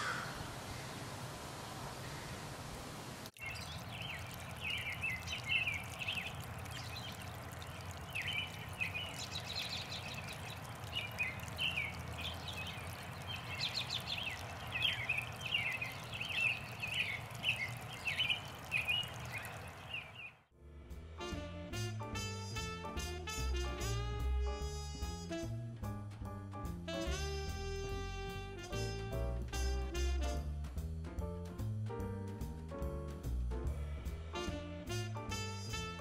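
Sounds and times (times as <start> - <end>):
water trickling in a pond: 3.0 - 20.4, 34.5 - 36.0
songbirds chirping: 3.3 - 20.5
jazz music with saxophone: 20.9 - 33.0, 34.2 - 36.0.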